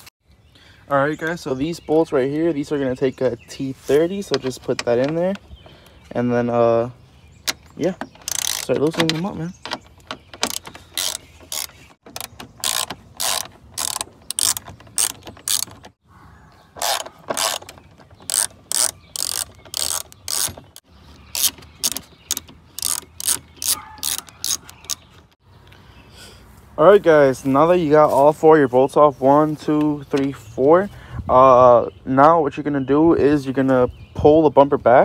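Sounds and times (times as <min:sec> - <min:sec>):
hand ratchet clicking: 0:08.2 - 0:15.9, 0:16.8 - 0:25.1.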